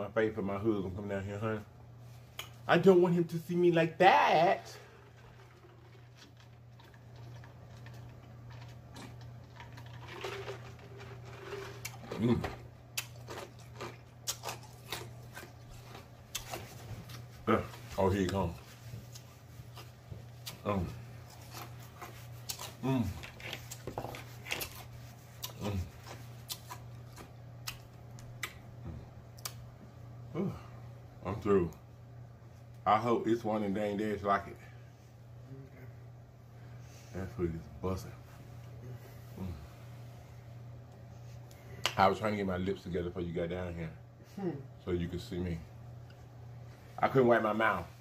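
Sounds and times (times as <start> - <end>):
steady low hum: 0.0 - 48.0
soft throat and lip clicks: 27.6 - 29.6.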